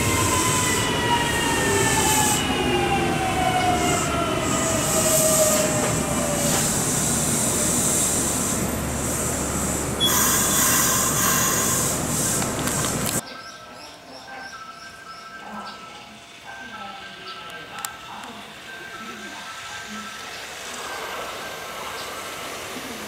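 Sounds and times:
electric train moving slowly: 0.0 - 23.0
hiss: 3.8 - 13.1, 20.4 - 23.0.

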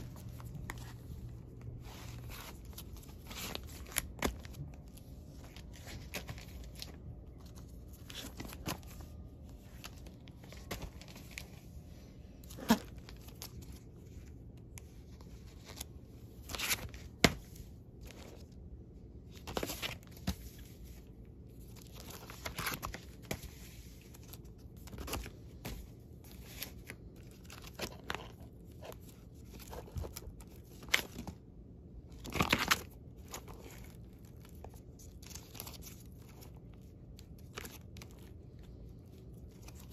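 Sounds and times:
plastic sleeves crinkling: 0.0 - 39.9.

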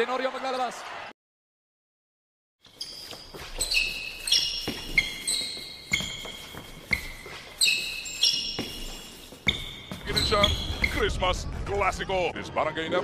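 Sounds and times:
shoe squeaks: 2.6 - 11.1
basketball bouncing on court: 3.1 - 11.0.

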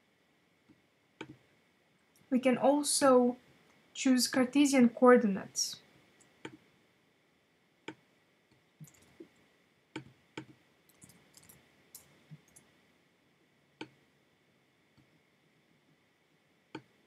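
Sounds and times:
mouse and keyboard clicks: 8.8 - 9.3.

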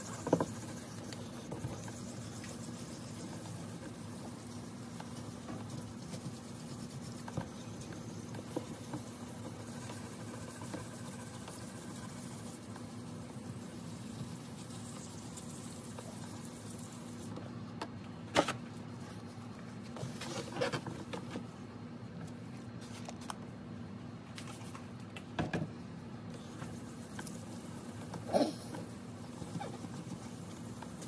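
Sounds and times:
wet sponge scrubbing plastic: 0.0 - 17.4
steady low hum: 0.0 - 31.0.

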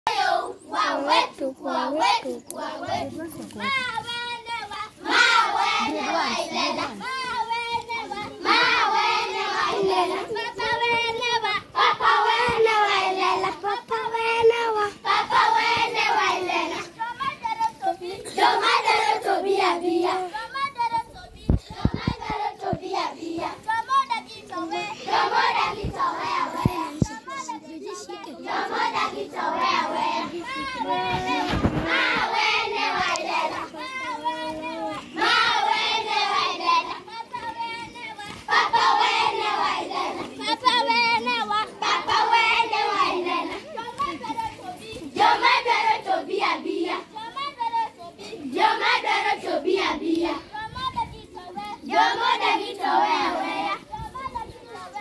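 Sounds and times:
children singing: 24.4 - 47.1.

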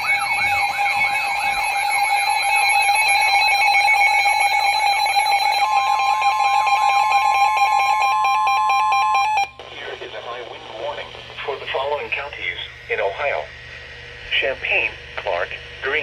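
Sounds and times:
siren-like warbling alert: 0.0 - 9.6
steady electronic tones: 0.0 - 16.0.

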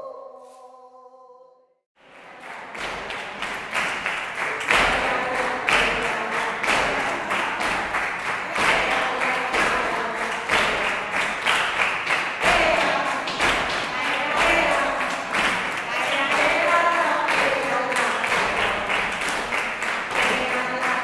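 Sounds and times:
group clapping rhythm: 2.0 - 21.0
voices singing: 4.4 - 21.0.

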